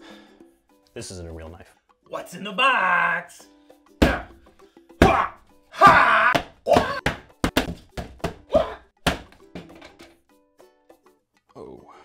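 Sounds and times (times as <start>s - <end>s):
cardboard whacking and scraping: 5.9s - 8.4s.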